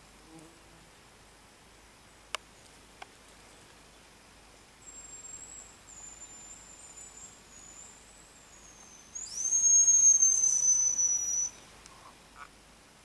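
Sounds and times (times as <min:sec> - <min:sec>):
grouse whistles: 0:08.6 - 0:12.1.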